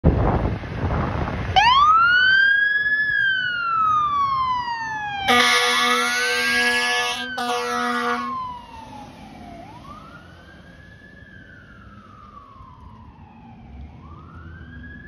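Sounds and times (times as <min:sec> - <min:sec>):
fire engine rumble: 0:00.0 - 0:15.0
mechanical siren wailing: 0:01.6 - 0:15.0
air horn blast: 0:05.3 - 0:08.4.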